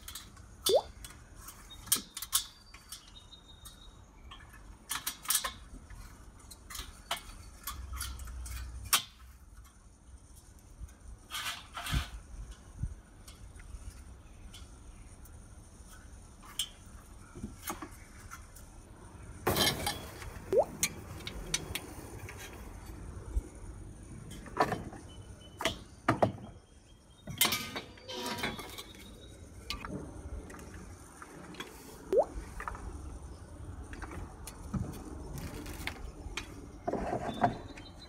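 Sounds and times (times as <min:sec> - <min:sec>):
metal grill parts clinking: 0:19.4 - 0:21.8.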